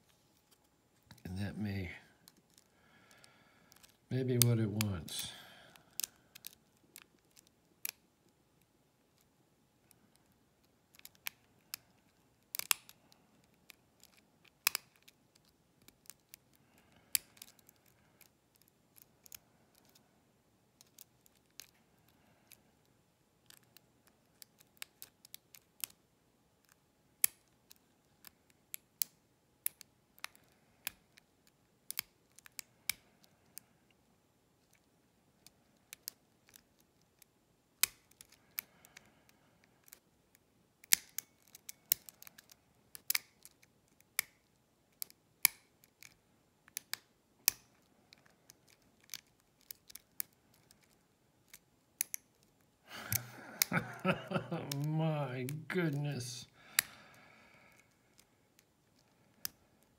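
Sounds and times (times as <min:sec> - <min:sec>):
lock pick metallic clicks: 0:12.5 - 0:13.0, 0:40.8 - 0:52.4.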